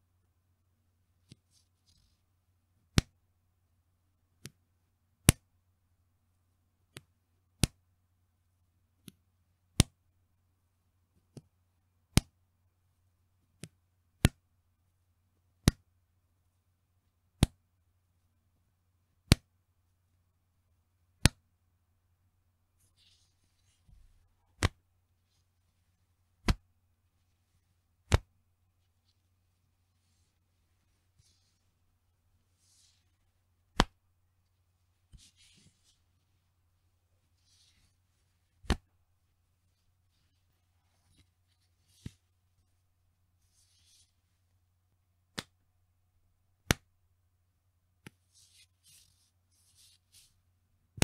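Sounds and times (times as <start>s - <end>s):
elastic band snapping: 24.6s - 24.8s, 26.4s - 26.6s, 28.1s - 28.3s, 33.8s - 34.0s, 38.6s - 38.9s, 45.3s - 45.6s.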